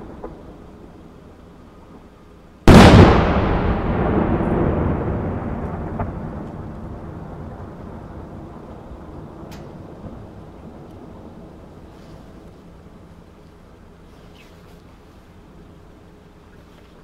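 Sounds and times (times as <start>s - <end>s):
firework bang: 0.0s - 0.8s, 2.7s - 10.4s
rumbling firework tail: 0.0s - 1.3s, 2.6s - 13.1s.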